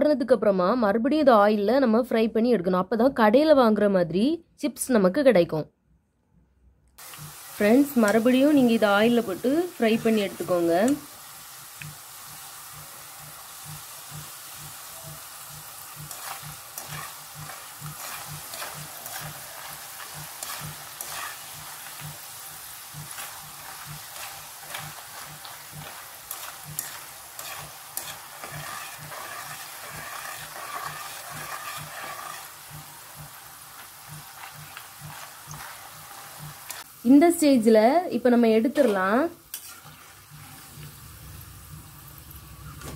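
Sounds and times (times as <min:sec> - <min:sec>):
slices sizzling in hot oil: 0:07.0 - 0:42.9
stick scraping against pan: 0:15.9 - 0:22.2, 0:23.0 - 0:32.9, 0:33.8 - 0:36.8, 0:38.8 - 0:40.1.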